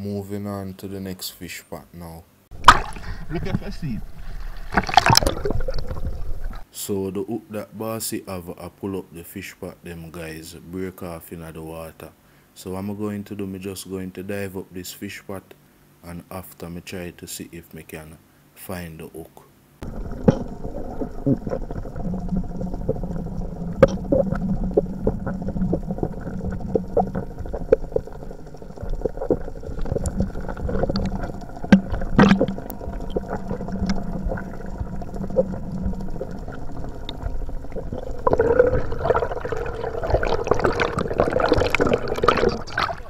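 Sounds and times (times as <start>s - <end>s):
underwater water noise: 2.5s - 6.7s, 19.8s - 43.0s
underwater clicks and knocks: 2.6s - 6.6s, 19.8s - 43.0s.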